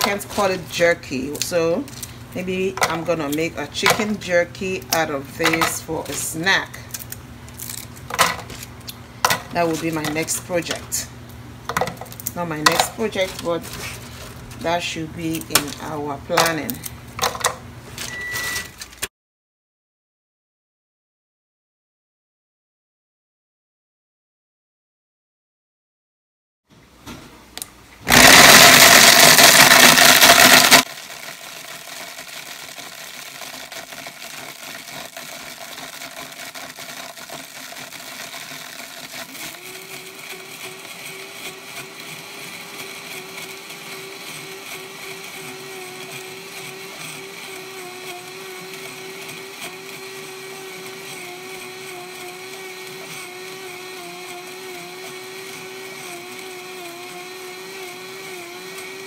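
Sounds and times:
blender motor grinding: 0:12.0 - 0:17.4, 0:28.1 - 0:59.0.

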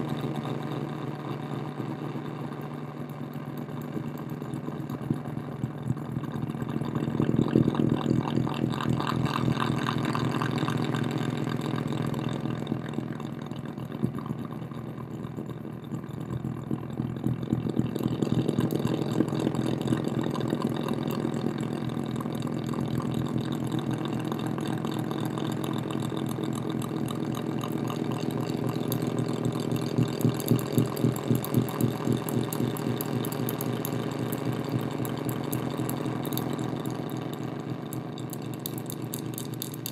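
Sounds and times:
rapidly pulsing electronic buzz: 0:05.0 - 0:39.9.

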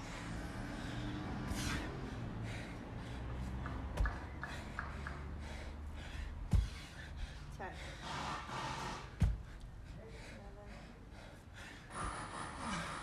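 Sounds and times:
heavy breathing: 0:00.0 - 0:13.0
dumbbell thudding on rubber mat: 0:09.2 - 0:09.5.

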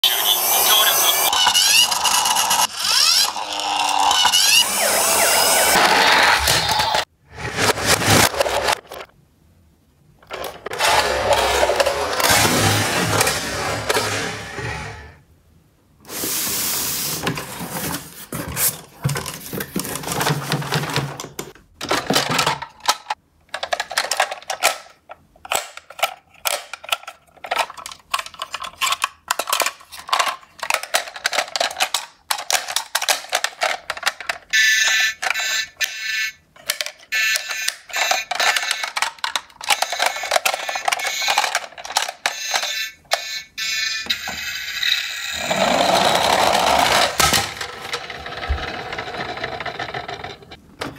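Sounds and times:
electronic beeping: 0:04.1 - 0:07.0
plastic toys knocking and rattling: 0:17.2 - 0:50.9.

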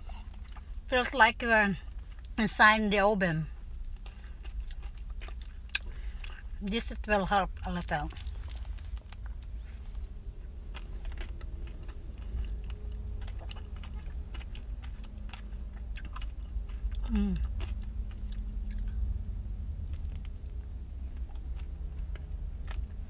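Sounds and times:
crunching and chewing: 0:00.0 - 0:00.9, 0:03.5 - 0:23.0
low rumble: 0:03.3 - 0:23.0
person humming: 0:17.0 - 0:17.5.

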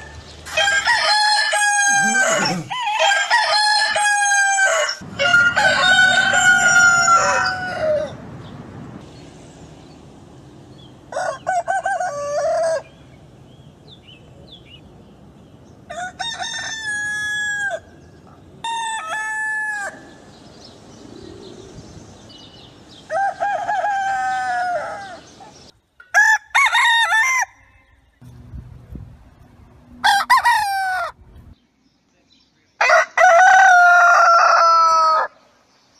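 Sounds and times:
rooster crowing: 0:00.0 - 0:08.2, 0:11.1 - 0:12.9, 0:15.9 - 0:17.9, 0:23.0 - 0:25.3, 0:26.1 - 0:28.1, 0:30.0 - 0:31.2, 0:32.8 - 0:35.4.

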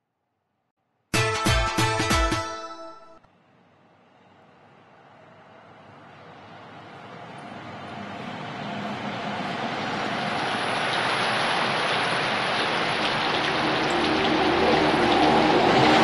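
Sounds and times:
rain-like hiss: 0:09.8 - 0:16.0.

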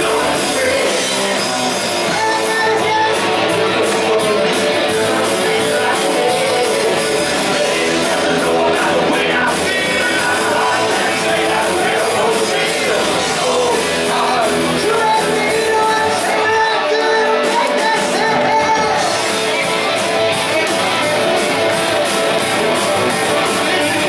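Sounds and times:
man singing lead vocal: 0:00.0 - 0:21.8, 0:23.1 - 0:24.0
live rock band playing: 0:00.0 - 0:24.0.

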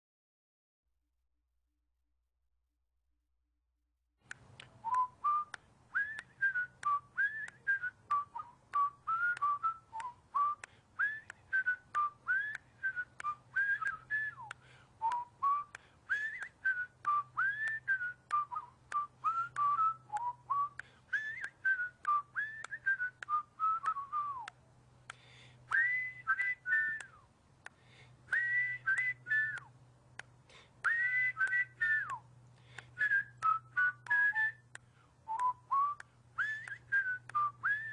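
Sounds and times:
person whistling a tune: 0:04.8 - 0:24.6, 0:25.7 - 0:27.3, 0:28.3 - 0:29.7, 0:30.8 - 0:37.9.

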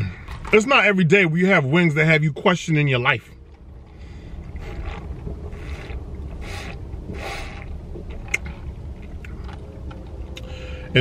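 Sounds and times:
low steady rumble: 0:00.0 - 0:11.0
slurping through a straw: 0:04.4 - 0:08.7.

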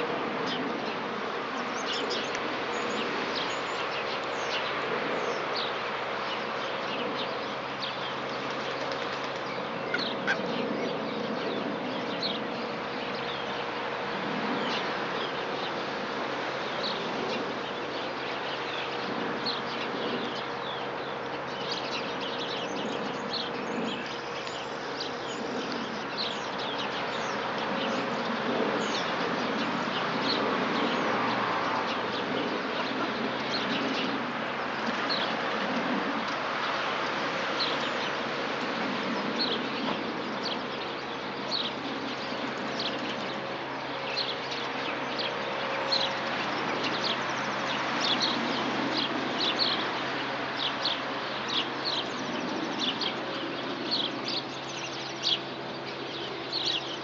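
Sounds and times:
small birds chirping: 0:16.6 - 0:38.3, 0:38.9 - 0:57.0.

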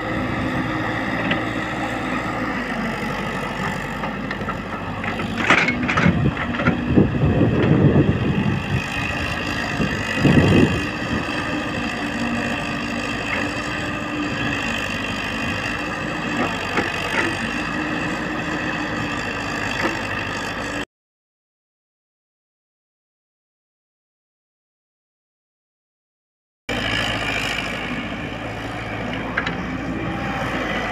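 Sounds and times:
excavator diesel engine running: 0:00.0 - 0:20.8, 0:26.7 - 0:30.9.

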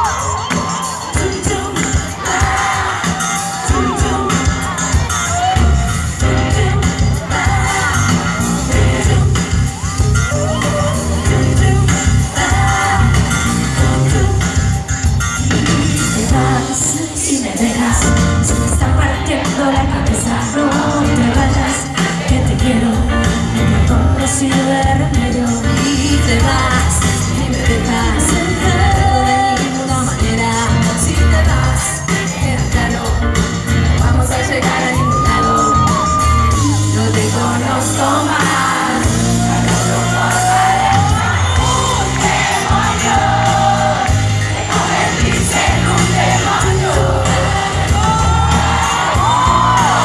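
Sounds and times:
crowd shouting along: 0:00.0 - 0:06.2, 0:34.6 - 0:50.0
woman singing: 0:00.0 - 0:09.8, 0:10.6 - 0:14.8, 0:15.7 - 0:44.0
bass guitar: 0:00.0 - 0:17.1, 0:17.8 - 0:50.0
drums: 0:00.0 - 0:50.0
live pop band with heavy beat: 0:00.0 - 0:50.0.

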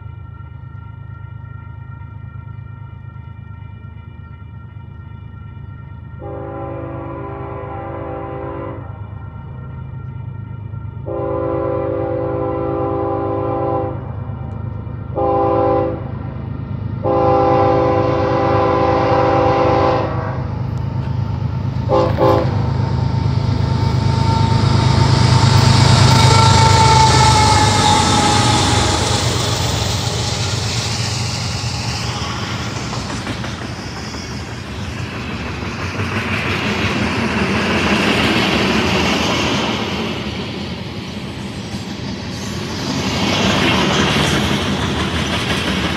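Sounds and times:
train air horn blasts: 0:06.1 - 0:09.1, 0:11.0 - 0:16.1, 0:17.0 - 0:20.6, 0:21.8 - 0:22.9, 0:23.6 - 0:30.8
diesel engines rumbling: 0:11.0 - 0:45.9
train wheels clattering on rails: 0:20.7 - 0:45.9.

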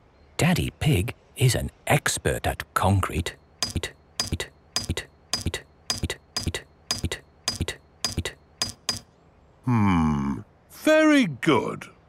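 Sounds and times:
metal tool tapping concrete: 0:03.6 - 0:09.1.

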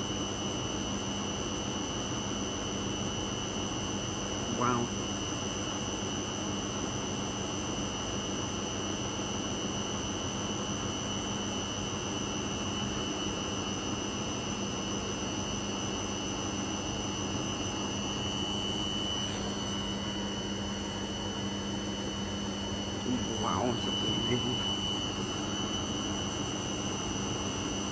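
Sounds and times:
washing machine spinning: 0:16.5 - 0:27.9.

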